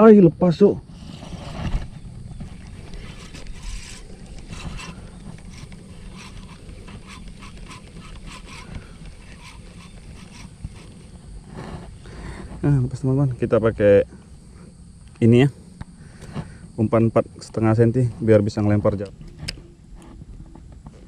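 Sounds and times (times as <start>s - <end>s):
wind rumble on microphone: 0.6s - 13.0s.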